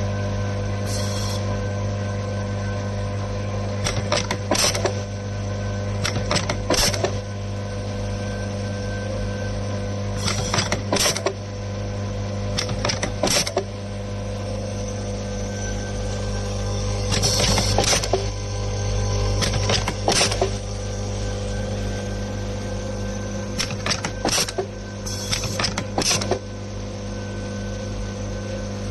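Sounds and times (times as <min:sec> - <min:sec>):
machine humming: 0:00.0 - 0:28.9
sharp mechanical clicks: 0:03.8 - 0:05.1, 0:06.0 - 0:07.2, 0:10.2 - 0:11.4, 0:12.5 - 0:13.7, 0:17.0 - 0:18.3, 0:19.4 - 0:20.6, 0:23.6 - 0:26.4.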